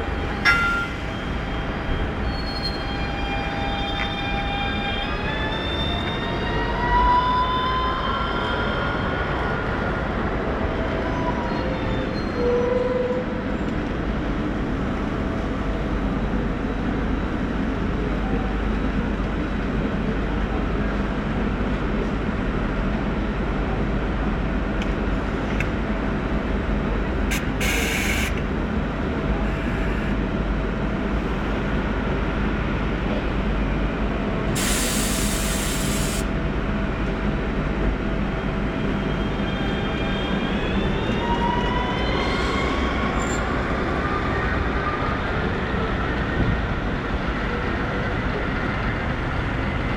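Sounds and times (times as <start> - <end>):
trolleybus electric hum and whine: 0.0 - 49.9
compressed air hissing: 34.6 - 36.2.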